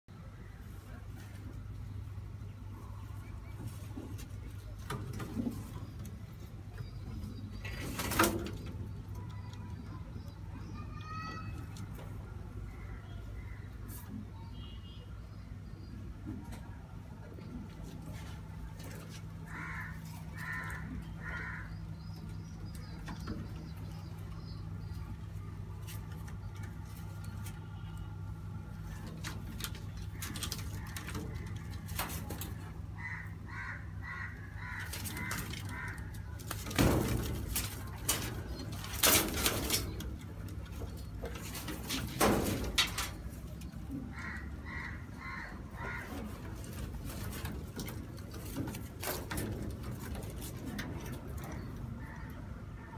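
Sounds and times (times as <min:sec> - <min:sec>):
pigeons calling: 0:17.4 - 0:52.9.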